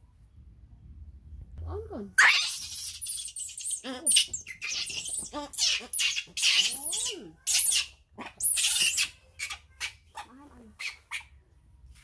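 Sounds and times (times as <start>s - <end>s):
baby monkey screaming: 2.2s - 11.3s.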